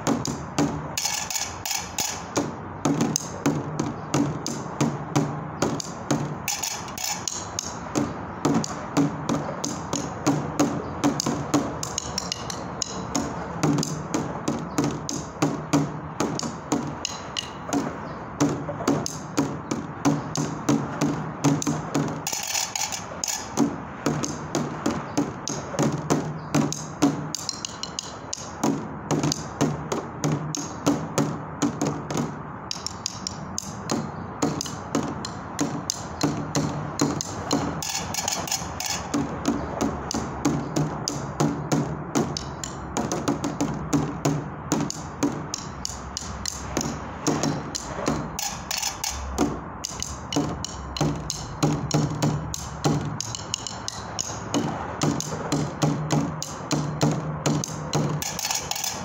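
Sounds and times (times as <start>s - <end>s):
stick beating on objects: 0.0s - 59.0s.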